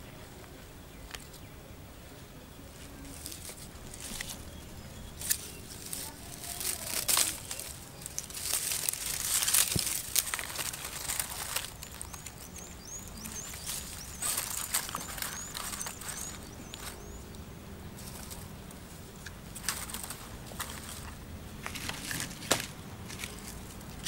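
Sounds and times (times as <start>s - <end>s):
dry grass and twigs crackling: 2.6s - 24.0s
small bird chirping: 10.5s - 18.6s.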